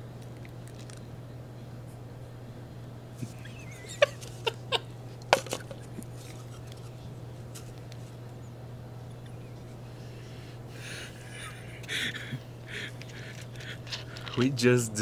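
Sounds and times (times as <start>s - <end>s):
steady low hum: 0.0s - 15.0s
men laughing: 3.2s - 7.0s, 10.8s - 14.3s.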